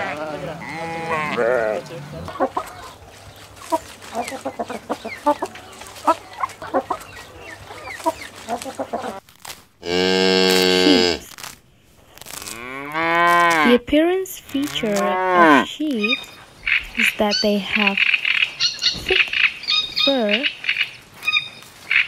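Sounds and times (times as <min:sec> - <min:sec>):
cow mooing: 0:00.0 - 0:02.9, 0:09.8 - 0:11.3, 0:12.4 - 0:13.8, 0:14.6 - 0:15.7
chickens clucking: 0:00.0 - 0:09.2, 0:14.5 - 0:22.0.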